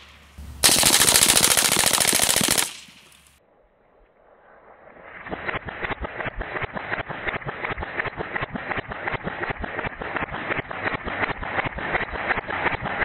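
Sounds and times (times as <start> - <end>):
suppressed submachine gun firing: 0.0 - 3.4.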